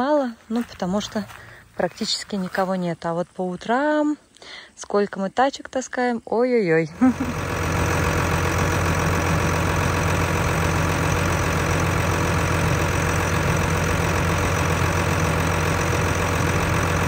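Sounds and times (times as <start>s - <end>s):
motor humming: 7.0s - 17.0s.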